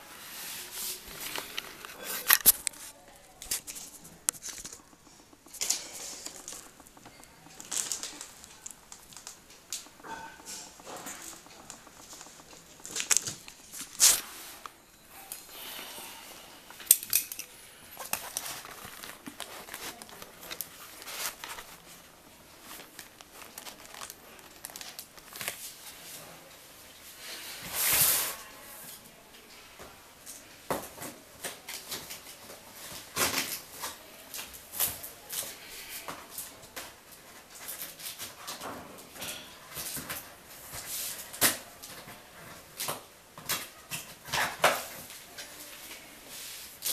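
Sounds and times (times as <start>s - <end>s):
cardboard rustling: 0.0s - 15.8s, 18.0s - 26.1s.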